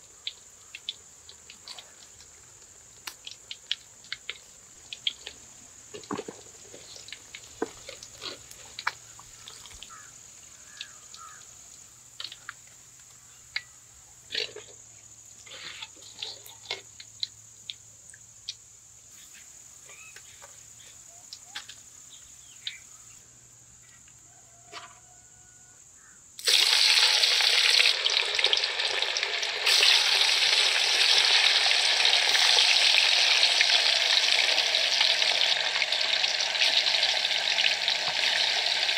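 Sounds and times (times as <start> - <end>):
fish sizzling in hot oil: 26.4 - 38.9.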